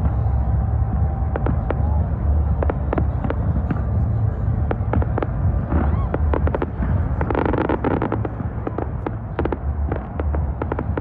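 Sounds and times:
fireworks bangs and crackles: 0.0 - 11.0
low rumble: 0.0 - 11.0.

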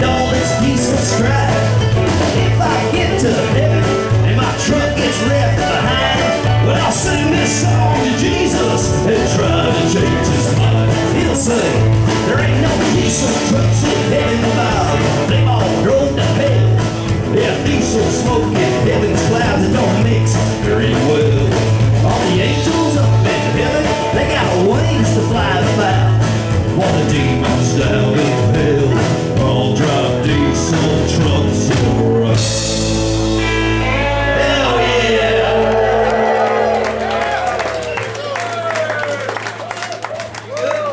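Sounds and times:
drums with cymbals: 0.0 - 33.8
acoustic guitar: 0.0 - 37.9
upright bass notes: 0.0 - 39.7
live band playing: 0.0 - 40.9.

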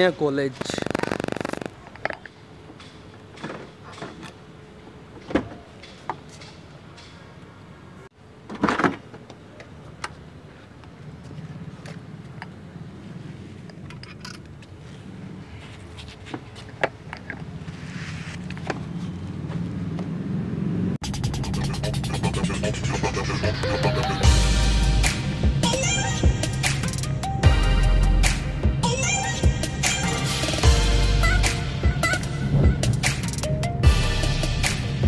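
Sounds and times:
car engine and road hum: 11.1 - 26.0.

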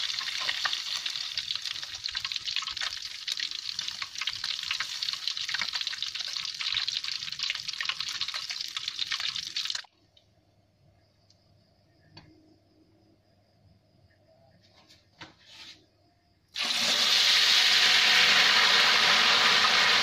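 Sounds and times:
egg sizzling in hot oil: 0.0 - 9.9, 16.6 - 20.0.

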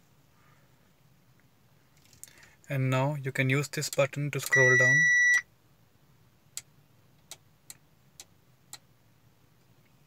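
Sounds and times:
high electronic beep: 4.5 - 5.4.

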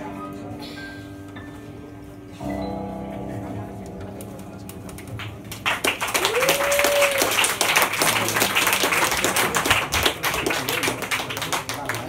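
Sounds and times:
audience applauding: 4.6 - 12.0
person whooping: 6.2 - 7.4.

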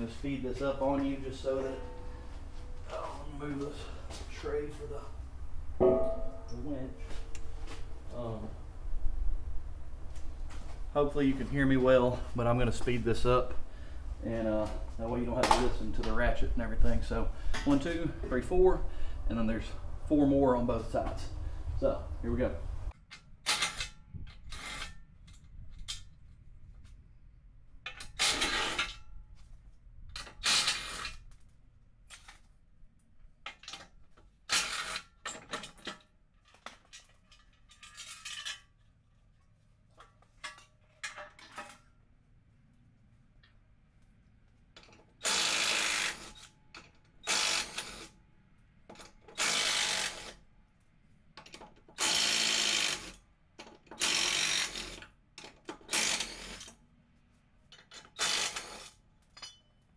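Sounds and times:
wrench bursts: 30.2 - 31.2, 44.8 - 48.1, 49.3 - 50.4, 52.0 - 53.2, 53.8 - 55.1, 55.7 - 56.8, 57.8 - 59.0
metal clicks and clinks: 59.2 - 59.8.

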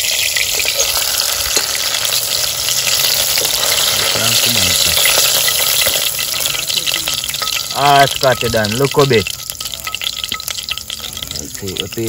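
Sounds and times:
hot oil sizzling: 0.0 - 12.0
fork scraping pan: 0.5 - 2.2.

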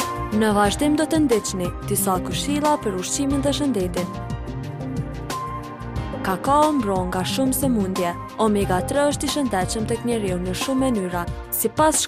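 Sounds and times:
background music: 0.0 - 12.0.

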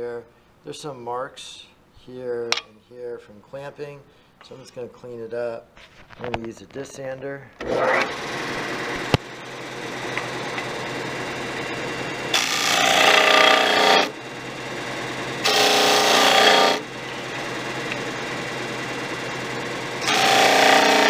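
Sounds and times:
disc sander running: 7.6 - 21.0
wood grinding on sanding disc: 12.3 - 14.1, 15.4 - 16.9, 20.0 - 21.0.

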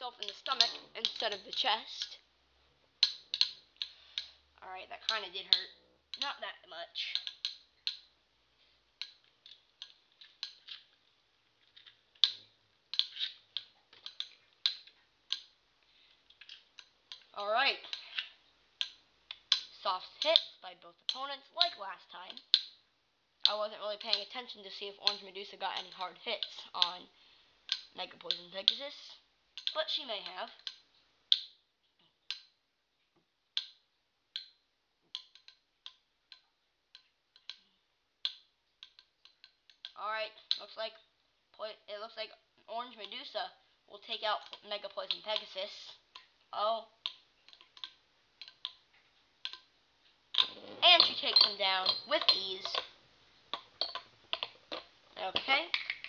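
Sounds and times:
spinning tops clashing clicks: 50.4 - 56.0.

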